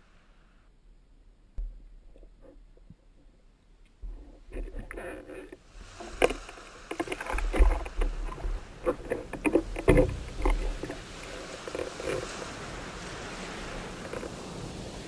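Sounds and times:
knocks and low thumps: 1.6s - 3.0s, 7.2s - 11.0s
water sloshing and splashing: 4.0s - 15.0s.

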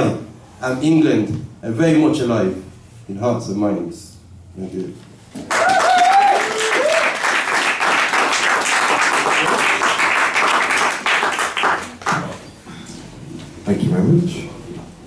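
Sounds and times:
person whooping: 5.5s - 7.2s
audience applauding: 5.5s - 12.3s.

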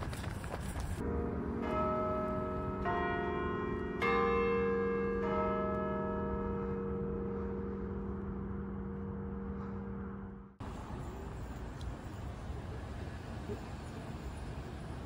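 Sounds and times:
street noise: 0.0s - 15.0s
church bells ringing: 1.0s - 10.7s.

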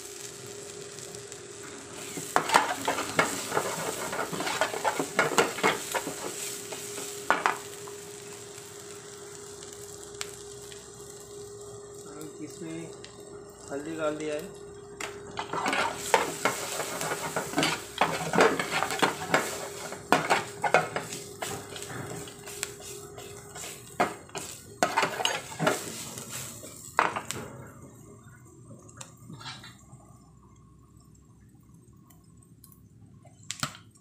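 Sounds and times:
food sizzling in hot oil: 0.0s - 27.5s
metal ladle scraping a pan: 2.2s - 6.3s, 15.4s - 23.8s, 24.4s - 26.4s.

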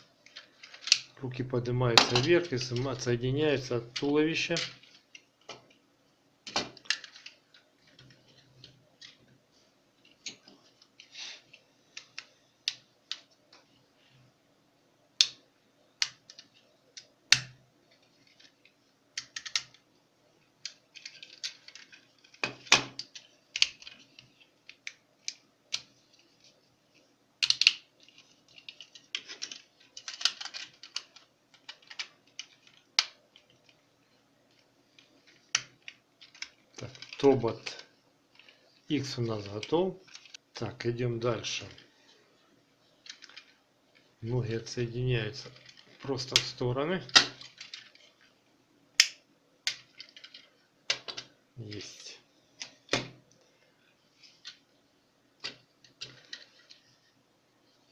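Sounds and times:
plastic toy parts clicking: 0.2s - 1.1s, 4.4s - 5.6s, 6.5s - 9.2s, 19.2s - 19.8s, 20.6s - 26.0s, 27.4s - 33.7s, 35.0s - 37.8s, 43.0s - 43.6s, 45.4s - 48.2s, 49.0s - 51.3s
plastic parts snapping: 0.3s - 1.1s, 19.2s - 19.8s, 20.6s - 25.9s, 27.4s - 33.2s, 45.4s - 48.1s, 49.0s - 51.3s.

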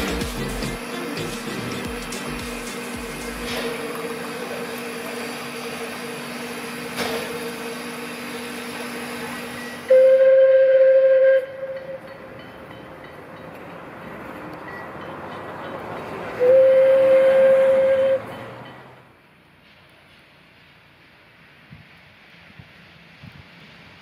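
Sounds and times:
steam locomotive hissing: 0.0s - 13.2s, 15.2s - 24.0s
steam whistle blast: 9.5s - 12.1s, 16.4s - 18.4s.

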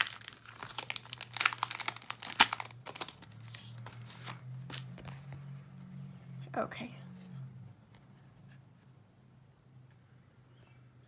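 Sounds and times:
packaging crinkling: 0.0s - 5.2s.

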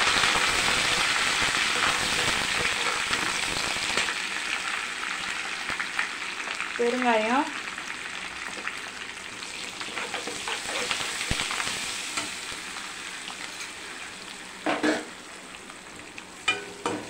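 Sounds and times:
spices sizzling in hot oil: 0.0s - 17.0s
ladle scraping pan: 9.9s - 11.1s.

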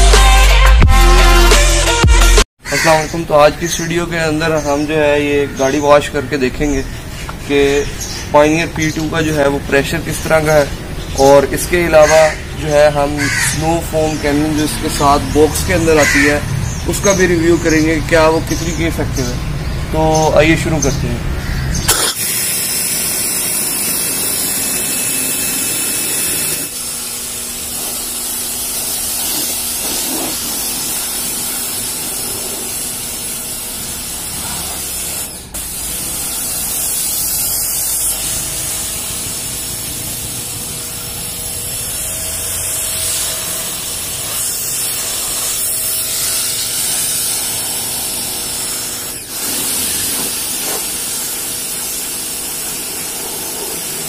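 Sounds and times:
pressure washer spraying water: 21.9s - 54.0s.

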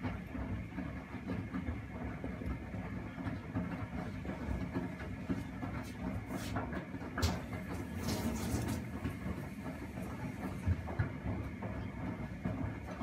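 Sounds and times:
washing machine drum rumble: 0.0s - 13.0s
laundry splashes: 7.2s - 9.6s.

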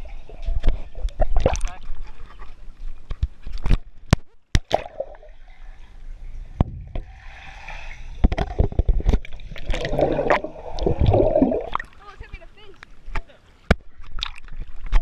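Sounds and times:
heavy splashing: 9.4s - 12.2s.

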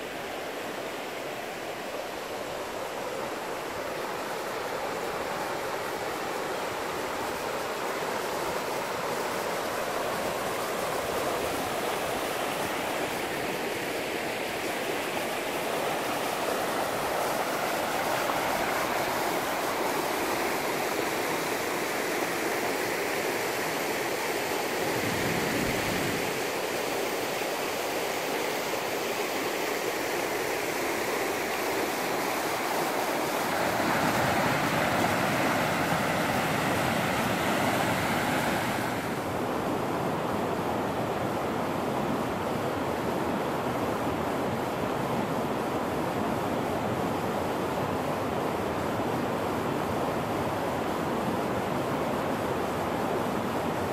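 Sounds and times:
water rushing over rocks: 0.1s - 39.5s.

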